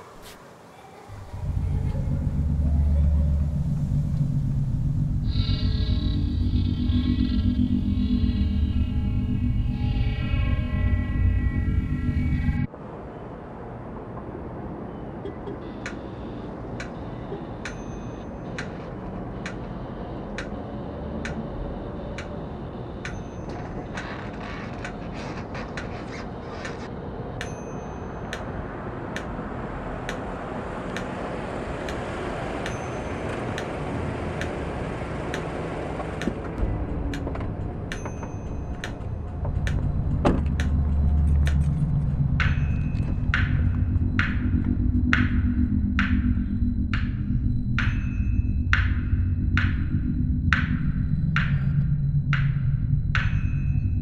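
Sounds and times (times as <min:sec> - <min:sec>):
deep low hum: 0:01.1 - 0:12.7, 0:33.7 - 0:54.0
steady rumbling noise: 0:01.1 - 0:17.7, 0:28.3 - 0:54.0
sharp metallic ticks: 0:16.7 - 0:17.0, 0:17.6 - 0:20.6, 0:23.0 - 0:25.0, 0:30.0 - 0:31.2, 0:31.8 - 0:34.7, 0:36.2 - 0:54.0.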